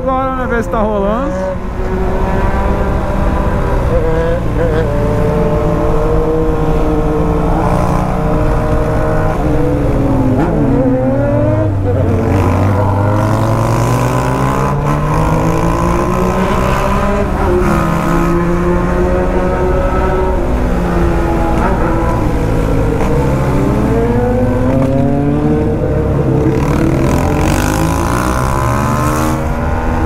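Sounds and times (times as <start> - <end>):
motorcycle engine while riding: 0.0 - 30.0.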